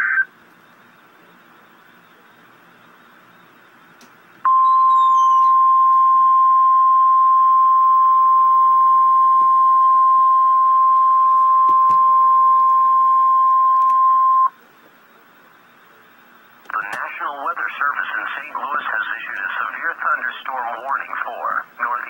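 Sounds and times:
steady high alarm tone: 4.5 - 14.6.

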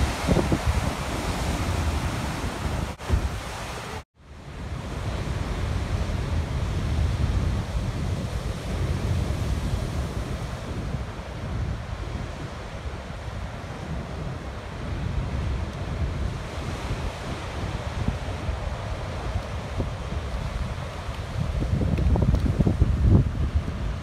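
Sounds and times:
wind buffeting microphone: 0.0 - 3.9, 4.5 - 24.0
surf breaking on rocks: 0.0 - 4.0.

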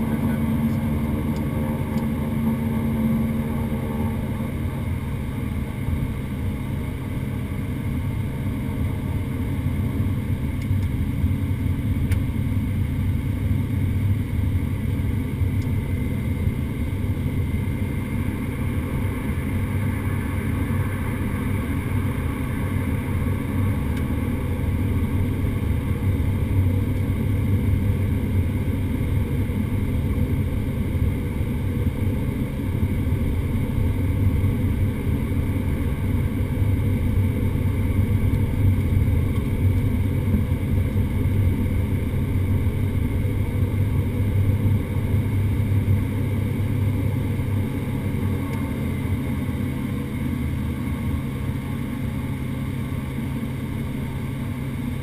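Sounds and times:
turboprop engines droning: 0.0 - 55.0.

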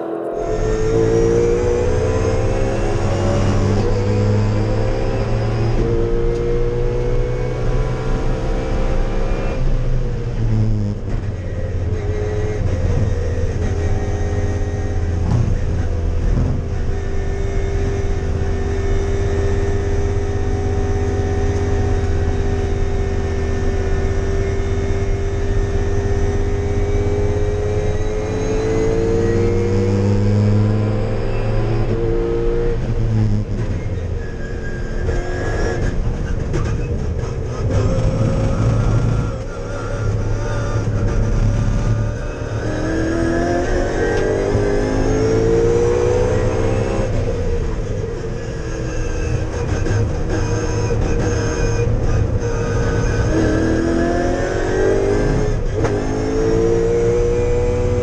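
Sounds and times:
race car engine under hard driving: 0.0 - 58.0.

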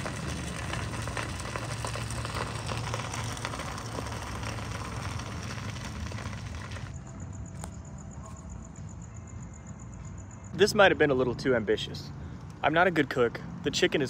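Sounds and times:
camp stove rumble: 0.0 - 7.0.

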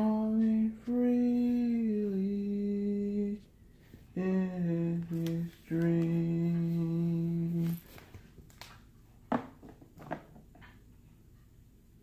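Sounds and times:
person humming a steady note: 0.0 - 3.5, 4.1 - 7.9.

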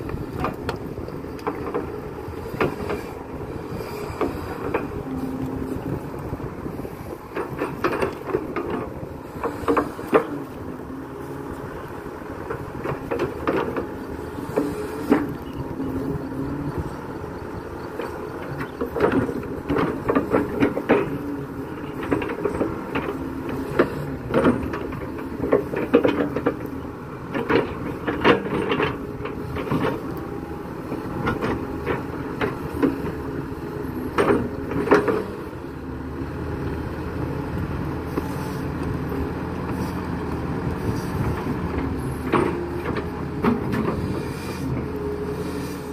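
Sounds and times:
excavator diesel engine: 0.0 - 45.9.

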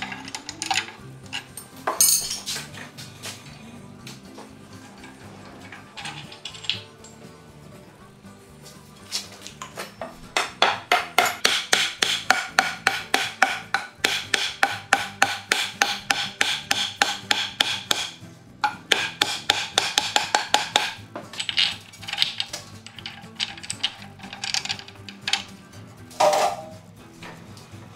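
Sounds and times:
rasp stroking wood: 18.9 - 21.0.

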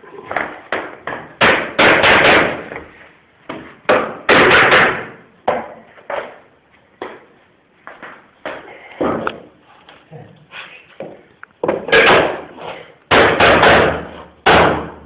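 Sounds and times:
hammer knocking floor boards: 0.3 - 2.9, 3.5 - 6.4, 11.0 - 12.5, 13.1 - 15.0.

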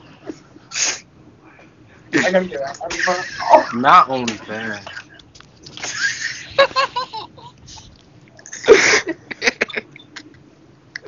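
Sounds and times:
people laughing: 2.2 - 5.2, 5.8 - 7.8, 8.5 - 10.2.

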